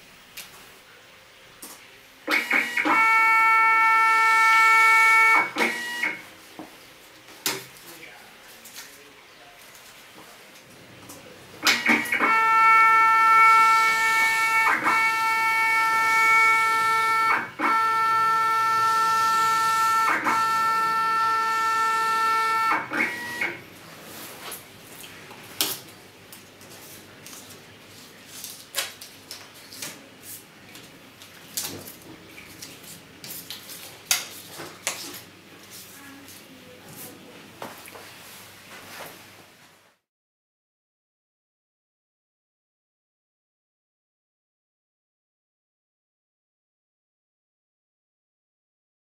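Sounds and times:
ticket printer whining: 2.3 - 6.2, 11.6 - 23.7
paper handling sounds: 23.8 - 37.2.

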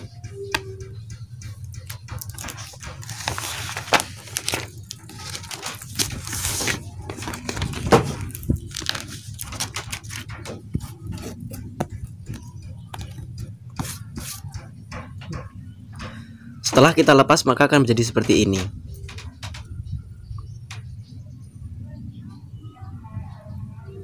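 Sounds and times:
clicks and taps handling sheet: 0.0 - 16.2
paper rustling and tearing: 2.2 - 11.8.

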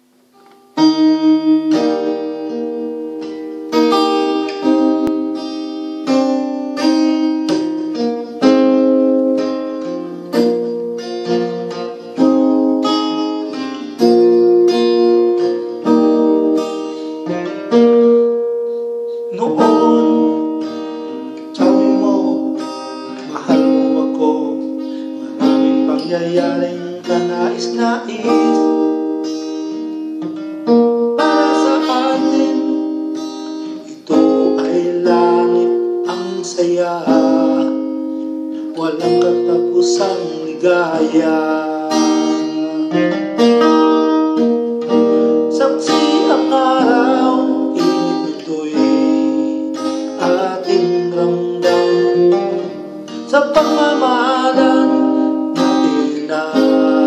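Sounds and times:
acoustic guitar picked chords: 0.0 - 57.0
man singing: 18.8 - 30.0, 31.0 - 43.8, 44.9 - 57.0.

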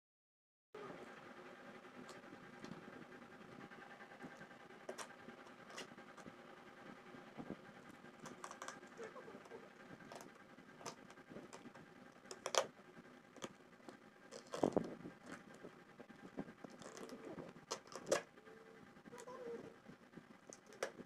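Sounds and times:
cardboard parcel crinkling: 14.3 - 15.6, 16.5 - 18.2.

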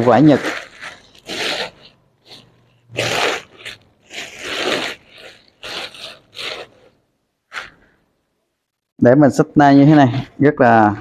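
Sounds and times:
bags rustling: 0.0 - 7.7.

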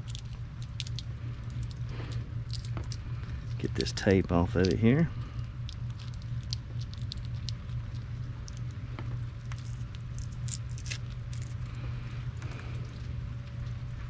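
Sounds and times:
tape peeling crackles: 0.0 - 8.8, 9.4 - 11.8
steady low hum: 0.0 - 14.0.

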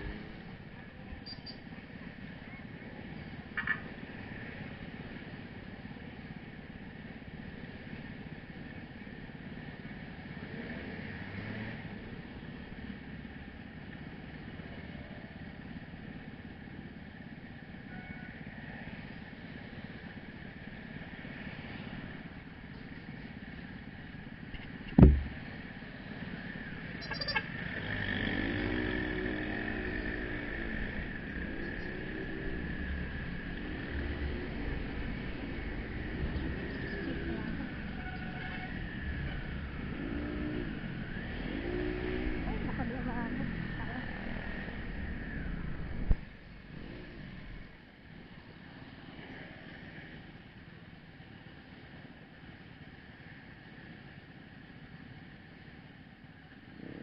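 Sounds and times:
motorcycle engine idling and revving: 0.0 - 57.0
street traffic: 0.0 - 57.0
loud sharp knock: 25.0 - 25.4.

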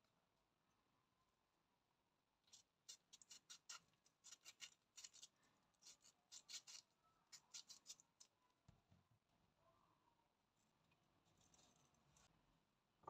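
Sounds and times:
knife slicing lemon: 2.5 - 8.3.

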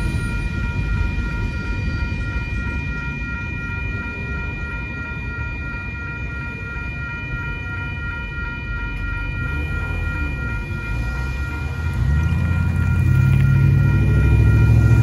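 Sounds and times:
railroad crossing bell ringing: 0.0 - 15.0
freight cars rumbling by: 9.2 - 15.0.

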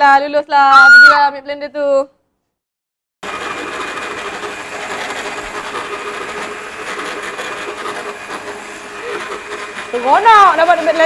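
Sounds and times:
electric blender whirring: 3.2 - 11.0.

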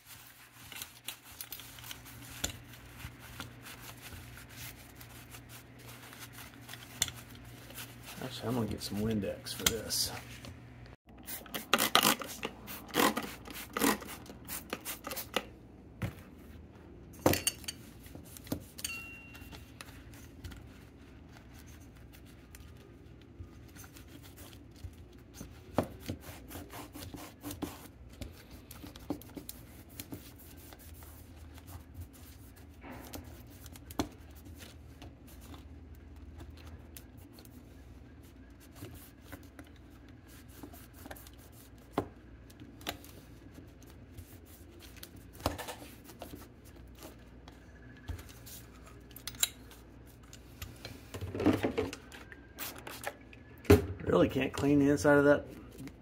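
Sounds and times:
cloth rubbing on metal: 0.0 - 10.4.

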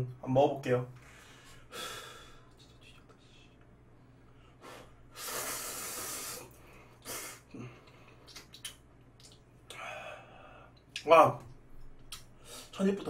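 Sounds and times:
chewing mouth clicks: 8.1 - 9.5.

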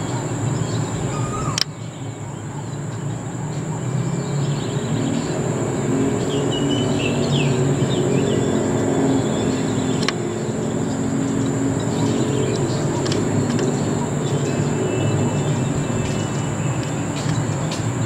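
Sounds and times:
high insect drone: 0.0 - 18.0
low traffic hum: 0.0 - 18.0
sharp click: 10.0 - 10.2.

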